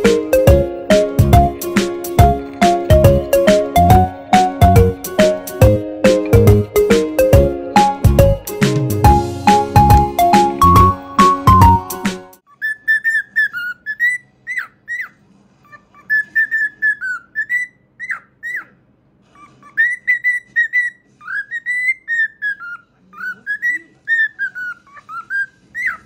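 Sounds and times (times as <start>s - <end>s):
cockatiel whistling: 12.6s - 15.2s, 16.0s - 18.8s, 19.4s - 26.0s.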